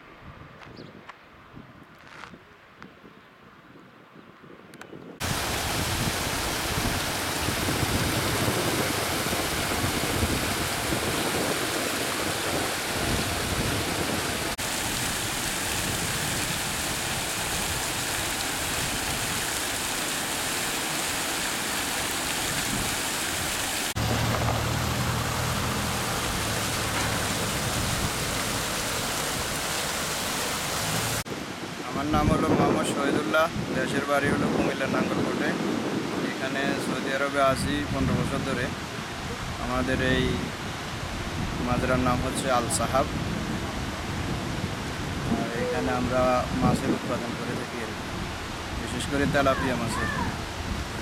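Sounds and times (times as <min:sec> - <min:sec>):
paddlewheel aerators churning water: 0:05.2 - 0:31.2
low motor hum: 0:24.0 - 0:28.7.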